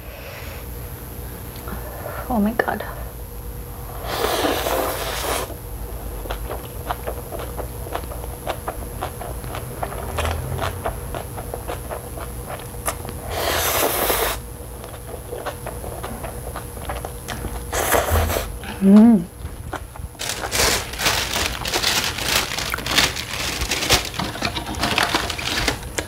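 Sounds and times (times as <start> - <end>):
person slurping noodles: 4.0 - 5.5, 13.2 - 14.4, 17.6 - 18.6
wet chewing and lip-smacking: 6.0 - 13.2, 14.6 - 17.8.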